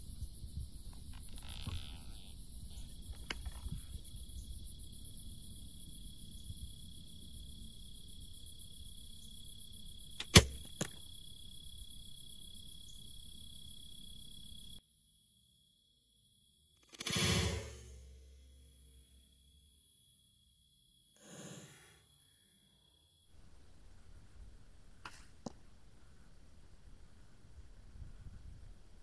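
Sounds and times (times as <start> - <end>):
crickets chirping: 0.0 - 24.8
bow string snap: 10.2 - 11.0.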